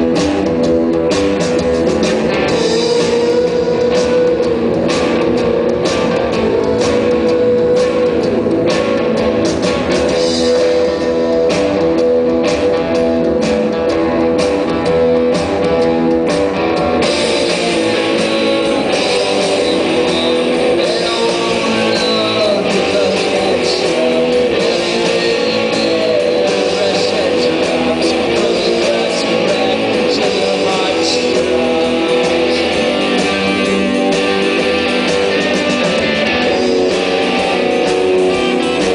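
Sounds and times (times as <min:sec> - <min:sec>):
live rock band: 0:00.0 - 0:38.9.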